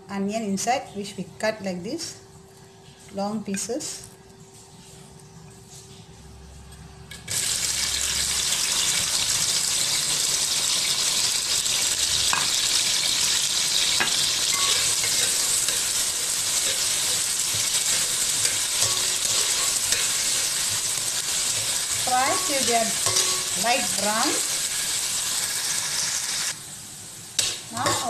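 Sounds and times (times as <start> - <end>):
onions sizzling in hot oil: 7.1 - 28.0.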